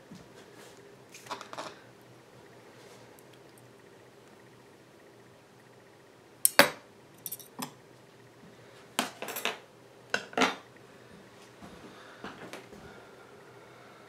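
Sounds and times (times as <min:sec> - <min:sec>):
metal tongs clinking on glass: 0:07.2 - 0:07.7.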